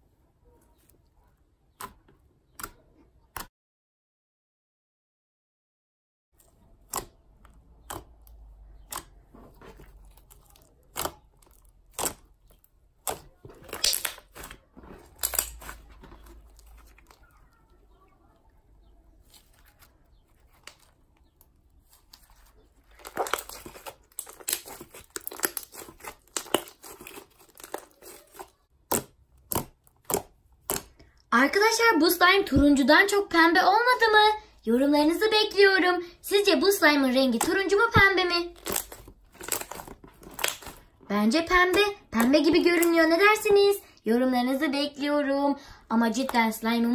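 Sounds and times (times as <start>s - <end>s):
slime clicking and crackling: 6.4s - 31.2s, 37.2s - 43.1s.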